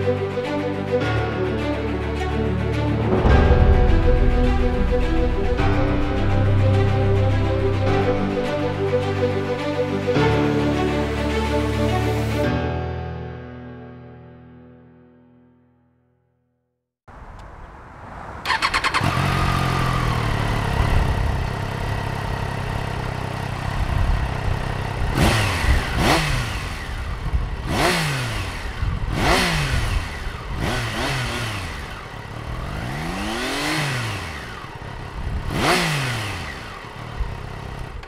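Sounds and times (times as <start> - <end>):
motorcycle engine idling and revving: 17.1 - 38.0
motorcycle engine starting: 18.4 - 38.0.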